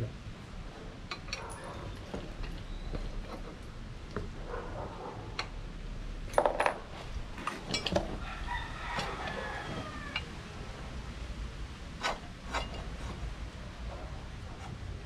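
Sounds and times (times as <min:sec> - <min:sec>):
steel parts clinking: 0:01.1 - 0:03.5, 0:06.3 - 0:08.2, 0:12.0 - 0:13.2.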